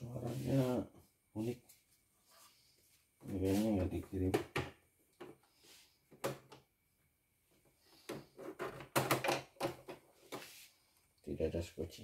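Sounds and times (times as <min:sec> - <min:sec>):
plastic clicks and knocks: 0:08.1 - 0:10.0.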